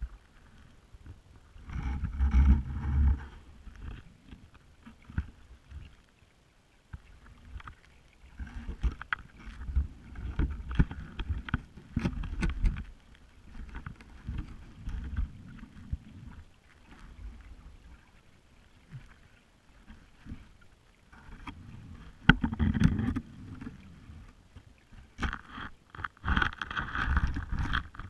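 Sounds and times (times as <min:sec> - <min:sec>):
magnet knocking underwater: 0:22.2 - 0:23.2.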